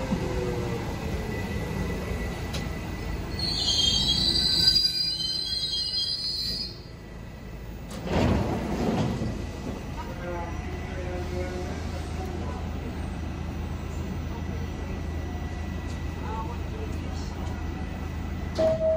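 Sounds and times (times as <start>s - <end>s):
subway train rumble: 0.0s - 18.9s
high brake squeal: 3.3s - 6.9s.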